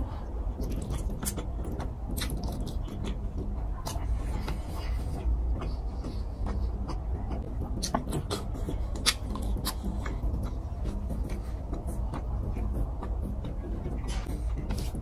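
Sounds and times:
fingers squishing through rice: 0.0 - 15.0
low steady hum: 0.0 - 15.0
wet mouth clicks and smacks: 0.6 - 4.6, 5.6 - 13.5.

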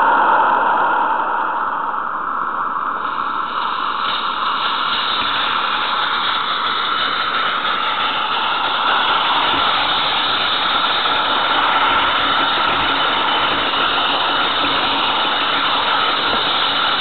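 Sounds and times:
model train wheels on track: 3.0 - 17.0.

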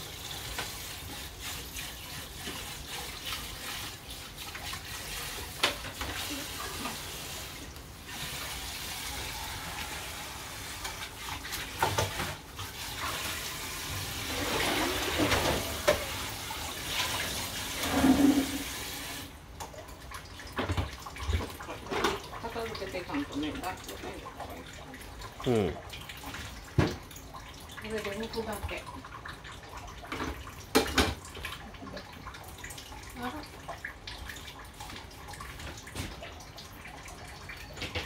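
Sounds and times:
tap running into sink: 11.7 - 12.4, 14.5 - 16.3, 26.7 - 27.1, 30.1 - 31.3
knocks and clatters of objects: 37.7 - 38.0.

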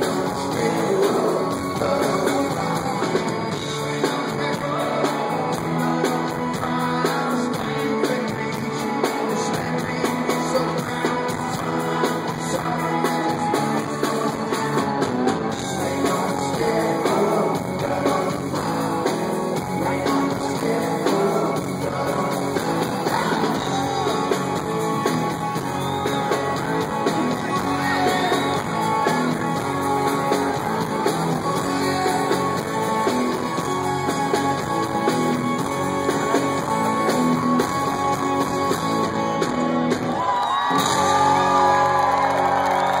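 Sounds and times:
live rock band playing: 0.0 - 43.0
crowd cheering and whistling: 8.8 - 18.4, 19.2 - 43.0.

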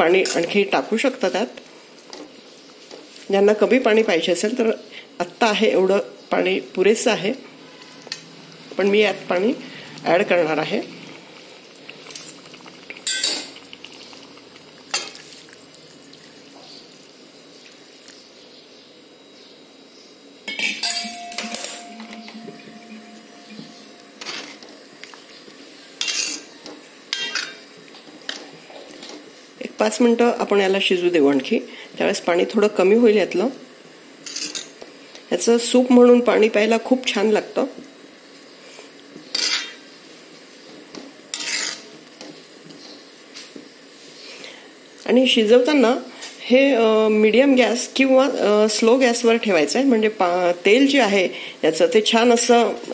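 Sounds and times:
spoon clinking on metal pot: 20.5 - 22.5
ladle scraping metal pan: 41.3 - 41.9.

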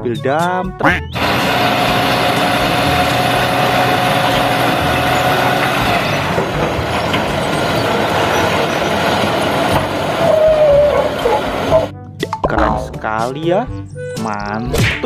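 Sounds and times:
truck engine running: 1.1 - 11.9
hydraulic whine: 1.2 - 11.9
soil sliding out: 1.2 - 11.9.

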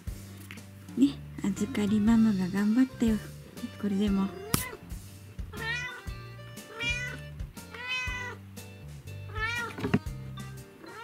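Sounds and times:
cat meowing: 5.5 - 8.4, 9.3 - 9.8, 10.8 - 11.0.

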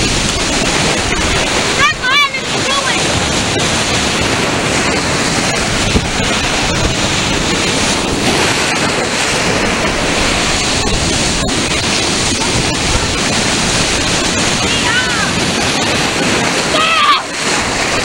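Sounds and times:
ocean surf breaking: 0.0 - 18.0
wind buffeting microphone: 0.0 - 18.0.

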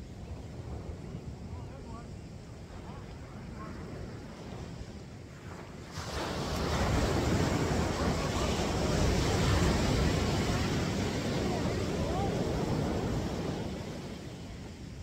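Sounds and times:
ocean surf washing onto beach: 0.0 - 15.0
wind on microphone: 0.0 - 15.0.

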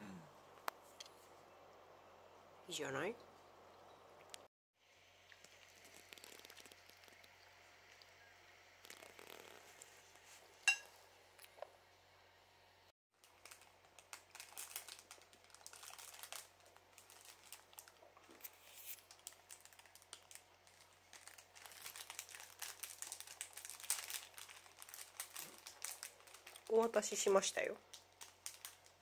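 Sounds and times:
plastic wrap crinkling: 8.8 - 10.2, 13.2 - 29.0.

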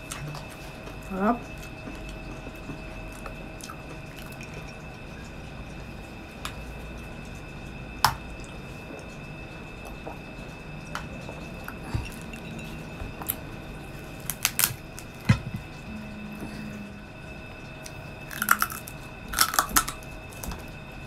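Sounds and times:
faint high whine: 0.0 - 21.0
chewing and swallowing: 11.2 - 15.8.

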